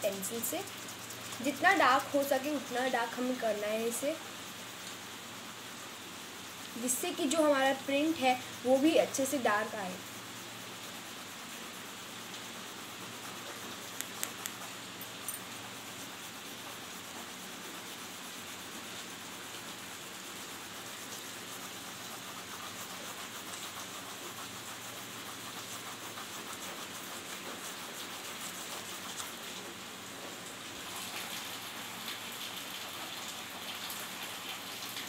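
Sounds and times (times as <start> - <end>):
pencil scratching on paper: 0.0 - 4.0, 20.9 - 29.6.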